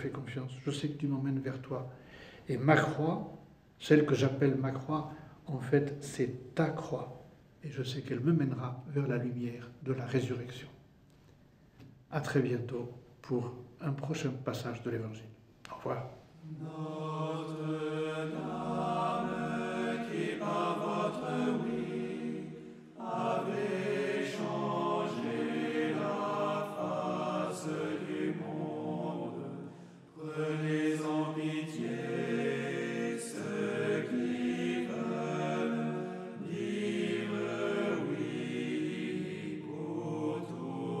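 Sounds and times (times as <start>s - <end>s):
choral chant singing: 15.8s - 41.0s.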